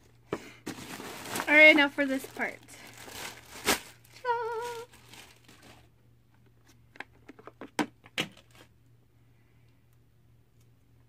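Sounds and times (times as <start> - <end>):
plastic bag crinkling: 0.7 - 5.9.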